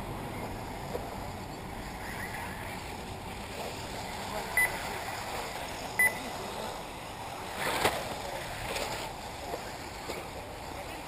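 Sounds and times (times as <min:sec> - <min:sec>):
electric rc buggies running: 0:00.0 - 0:11.0
short high electronic beeps: 0:06.0 - 0:06.2.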